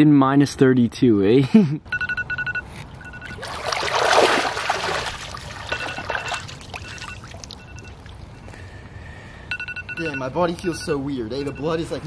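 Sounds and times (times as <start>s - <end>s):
water dripping: 3.0s - 8.6s
water splashing off body: 3.3s - 8.2s.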